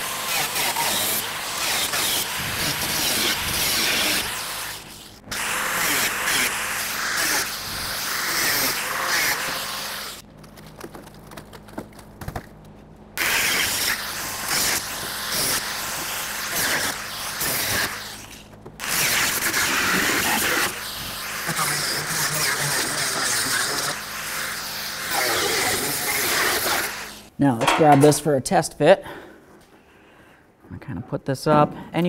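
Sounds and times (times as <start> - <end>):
grinder cutting sheet steel: 0.0 - 10.2, 13.2 - 27.9.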